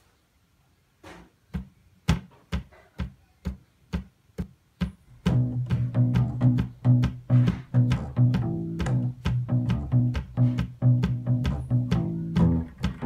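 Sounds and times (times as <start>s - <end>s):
sharp clicks with low thumps: 4.8s - 13.0s
low bass notes: 5.2s - 13.0s.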